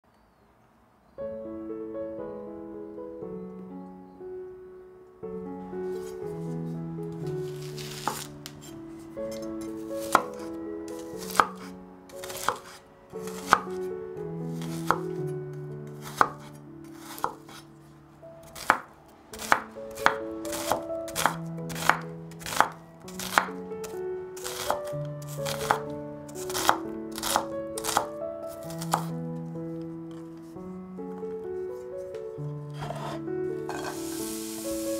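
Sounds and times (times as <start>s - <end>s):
knife cutting onto cutting board: 7.5s - 13.7s, 32.8s - 34.7s.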